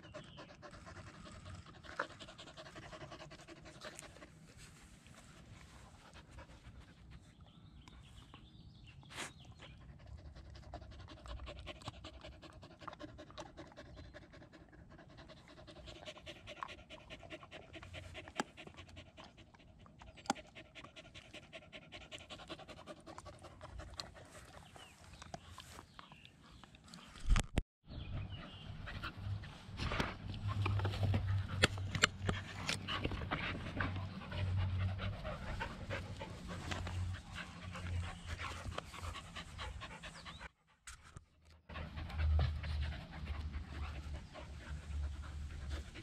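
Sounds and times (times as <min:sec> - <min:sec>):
dog panting: 0:00.0 - 0:07.6, 0:09.1 - 0:26.6, 0:28.1 - 0:40.9, 0:41.7 - 0:46.0.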